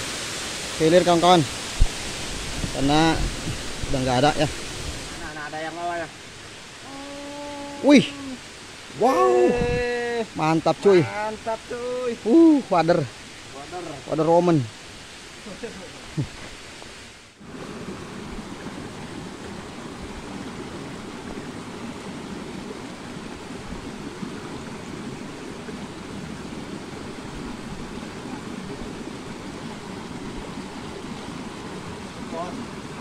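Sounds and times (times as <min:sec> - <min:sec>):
stream rushing over rocks: 0:00.0 - 0:33.0.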